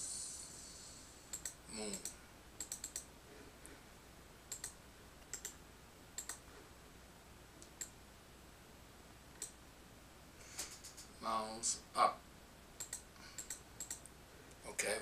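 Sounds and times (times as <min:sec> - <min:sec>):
computer mouse buttons clicking: 0:01.3 - 0:03.1, 0:04.5 - 0:05.6, 0:06.2 - 0:06.4, 0:07.6 - 0:08.0, 0:09.4 - 0:09.6, 0:12.8 - 0:14.1.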